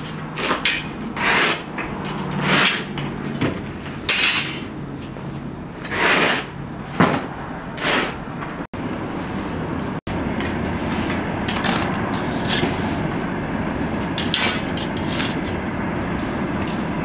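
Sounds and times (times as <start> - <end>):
metal hook scraping clay oven wall: 0.0 - 4.8, 10.4 - 15.7
steady low hum: 0.0 - 17.0.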